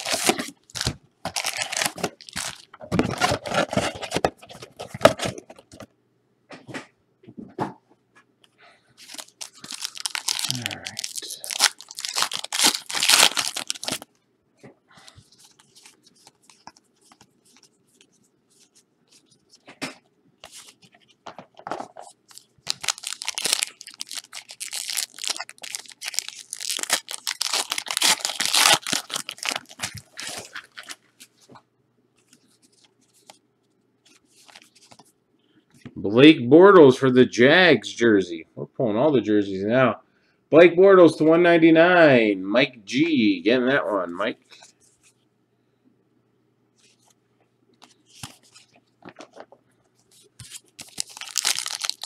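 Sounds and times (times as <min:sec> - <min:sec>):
wrapper ripping and crumpling: 0:00.0 - 0:04.2, 0:09.0 - 0:14.1, 0:22.3 - 0:31.0, 0:50.4 - 0:52.0.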